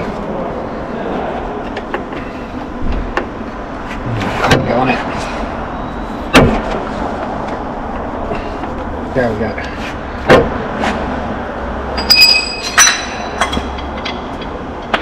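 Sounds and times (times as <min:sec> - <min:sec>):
steady background noise: 0:00.0 - 0:15.0
metal tools clicking and knocking: 0:12.0 - 0:15.0.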